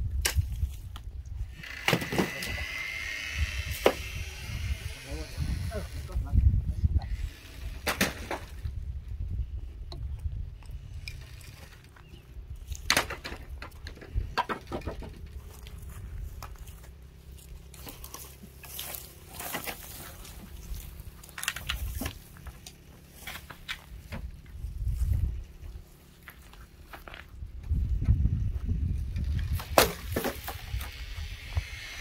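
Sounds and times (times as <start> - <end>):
dry wood and twigs cracking: 0.0 - 4.3, 9.8 - 27.8, 29.0 - 31.4
wooden poles knocking and scraping: 0.2 - 2.7, 7.0 - 8.8, 9.8 - 25.4, 26.0 - 31.1.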